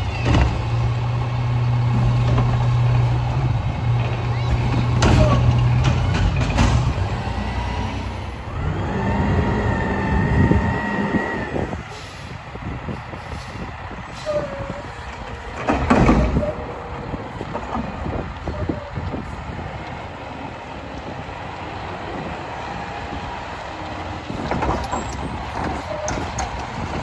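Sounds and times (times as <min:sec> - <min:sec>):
diesel engine running: 0:00.0 - 0:27.0
hydraulic whine: 0:03.4 - 0:12.4
loud clatter: 0:03.9 - 0:07.2.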